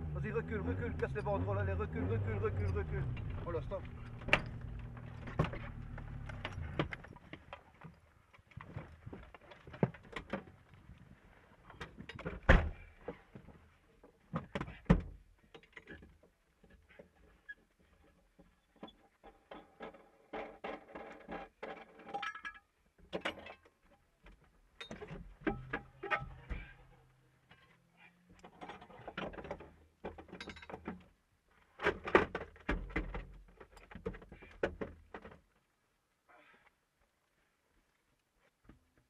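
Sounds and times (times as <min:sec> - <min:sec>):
car engine: 0:00.0 - 0:07.2
knocks clunks and rattles: 0:00.0 - 0:10.6, 0:11.7 - 0:22.2, 0:23.0 - 0:27.7, 0:28.3 - 0:35.6.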